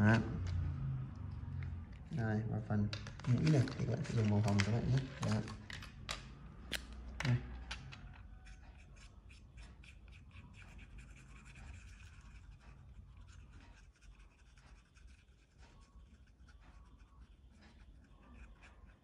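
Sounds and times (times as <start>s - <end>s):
marker scribbling on paper: 8.4s - 19.0s.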